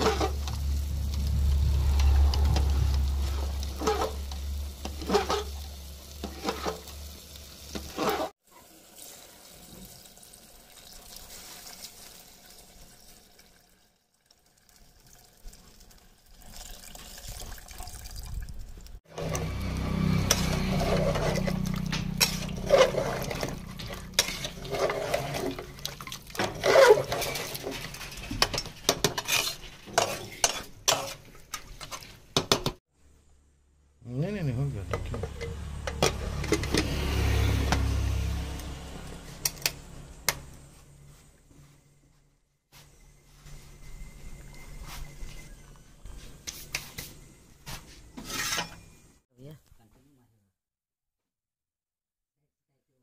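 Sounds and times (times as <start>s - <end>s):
ladle scraping and clinking in pot: 0.0s - 0.6s, 1.9s - 6.9s, 20.2s - 32.7s, 34.9s - 37.0s, 47.7s - 49.0s
water gushing into metal pot: 0.0s - 19.4s, 20.2s - 29.6s.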